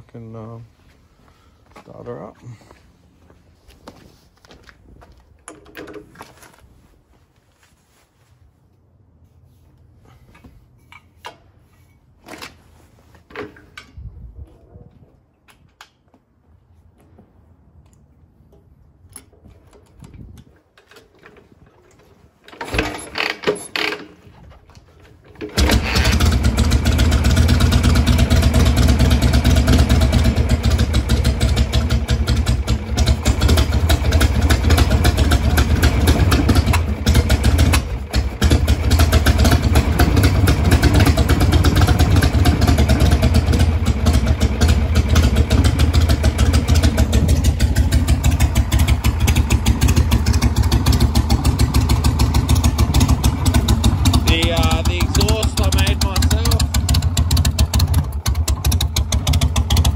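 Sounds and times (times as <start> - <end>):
motorcycle engine running loudly: 25.6 - 59.9.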